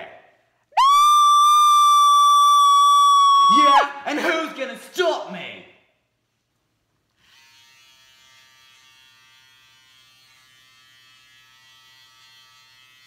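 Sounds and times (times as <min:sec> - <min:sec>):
electric razor buzzing: 0:07.2 - 0:13.0.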